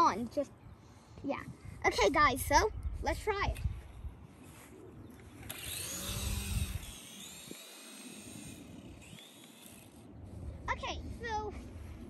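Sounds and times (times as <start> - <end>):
toy helicopter motors whining: 4.4 - 11.8.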